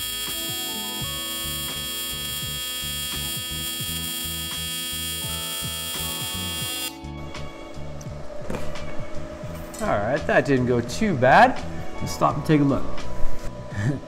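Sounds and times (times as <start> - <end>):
welding arc buzz: 0.0 - 7.0
background music with a beat: 0.0 - 12.4.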